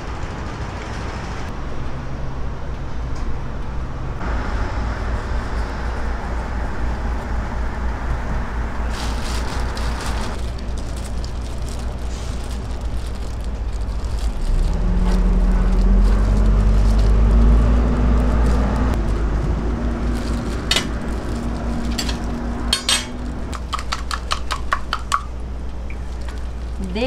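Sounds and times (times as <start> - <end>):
vehicle engine rumbling: 0.0 - 27.0
metal cooking utensils clinking: 21.9 - 23.3.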